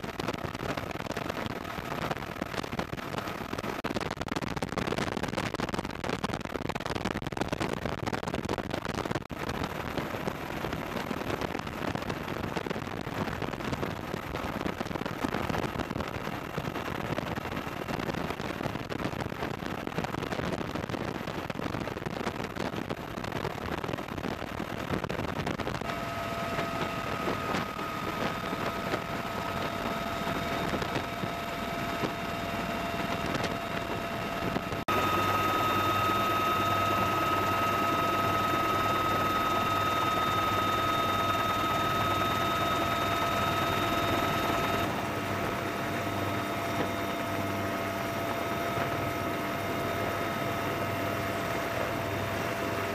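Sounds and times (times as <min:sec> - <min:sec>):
helicopter rotor noise: 0:03.0 - 0:03.8, 0:25.8 - 0:52.9
turbine whine: 0:25.8 - 0:52.9.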